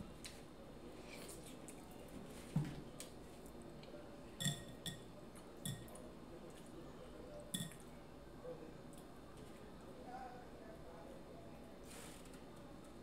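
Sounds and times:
light clinks on a glass bowl: 4.4s - 6.0s, 7.5s - 7.9s.

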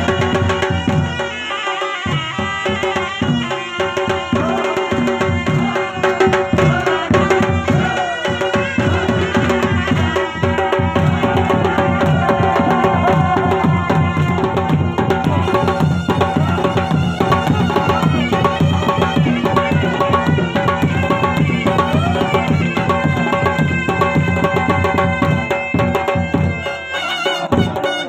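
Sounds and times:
drums beating fast rhythm: 0.0s - 28.0s.

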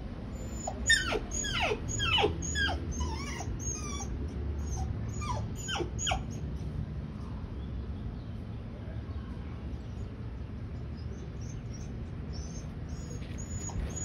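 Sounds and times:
dog whining: 0.3s - 6.5s, 11.4s - 14.0s.

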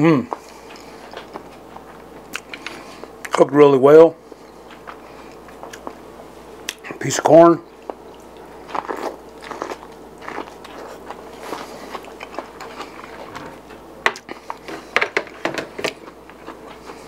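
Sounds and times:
chewing corn on the cob: 7.7s - 15.0s, 15.8s - 17.0s.

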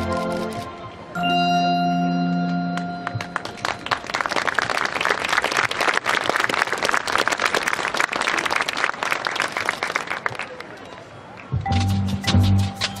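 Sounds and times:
crowd applauding: 3.0s - 11.5s.

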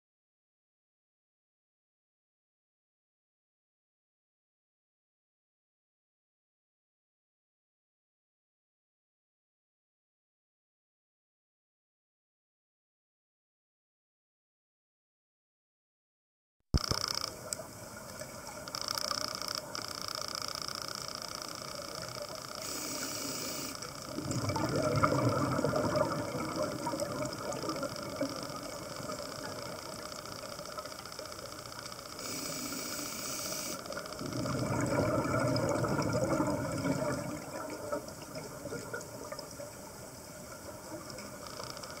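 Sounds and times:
exhaled bubbles gurgling: 21.5s - 42.0s
diver inhaling through regulator: 22.6s - 23.9s, 32.2s - 33.9s.

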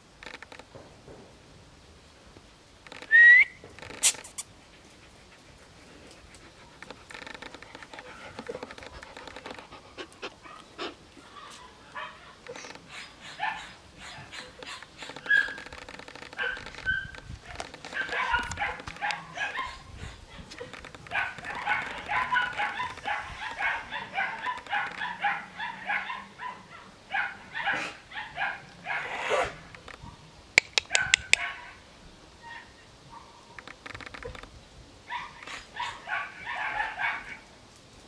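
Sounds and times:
dogs barking and yipping: 4.9s - 31.8s, 35.0s - 37.5s
sharp clicks: 30.6s - 31.4s.

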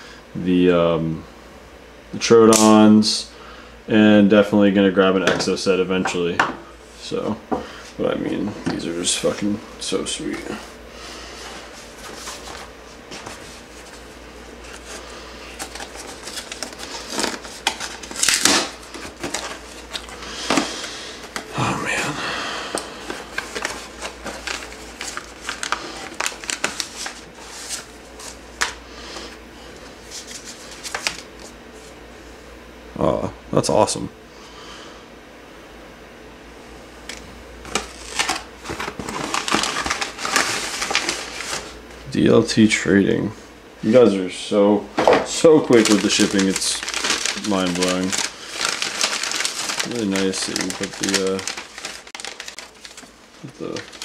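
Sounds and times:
cardboard rustling and scraping: 10.2s - 21.5s, 23.0s - 32.0s, 37.6s - 41.8s, 45.3s - 54.0s
paper crinkling: 10.2s - 21.6s, 22.7s - 31.9s, 37.6s - 41.8s, 45.3s - 54.0s
cardboard ripping: 14.6s - 21.5s, 23.0s - 28.8s, 37.6s - 41.8s, 45.5s - 54.0s.

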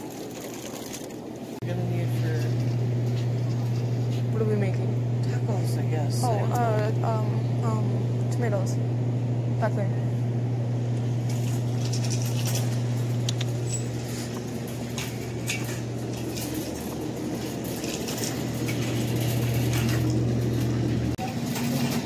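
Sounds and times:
steady low hum: 1.3s - 21.6s.

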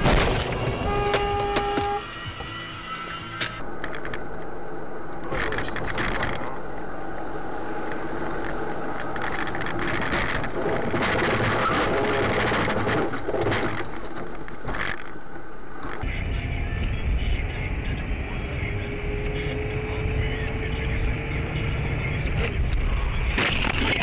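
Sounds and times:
road and engine noise: 0.0s - 24.0s
small clicks and rattles: 3.8s - 4.5s, 5.2s - 16.0s.

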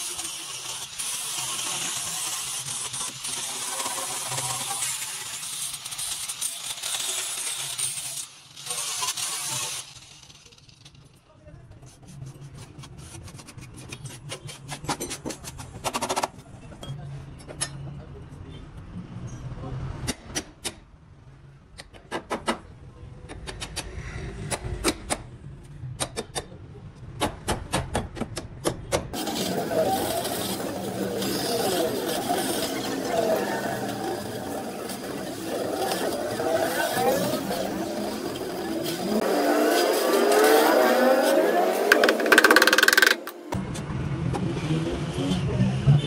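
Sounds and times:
angle grinder grinding metal: 0.0s - 10.6s, 29.2s - 43.6s.

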